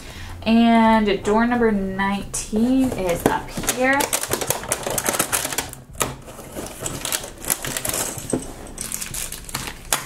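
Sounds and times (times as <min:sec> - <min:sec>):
plastic bag crinkling: 0:03.0 - 0:10.0.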